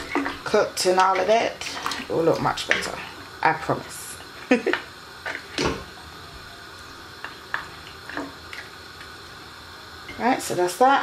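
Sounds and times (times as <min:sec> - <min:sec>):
spoon stirring water in a pot: 0:00.0 - 0:03.1.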